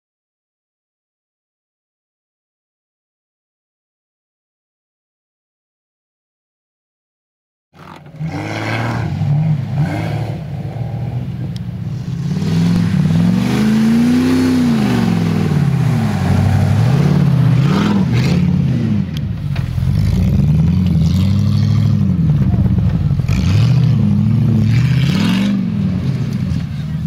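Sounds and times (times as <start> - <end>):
off-road vehicle engine revving: 7.8 - 27.0.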